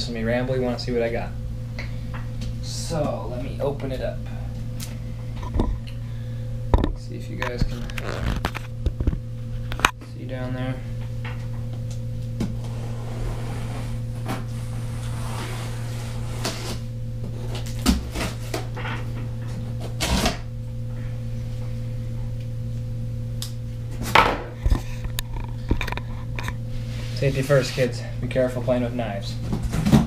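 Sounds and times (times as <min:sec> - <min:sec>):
steady low hum: 0:00.0 - 0:30.0
knife cutting cardboard box: 0:19.8 - 0:20.4.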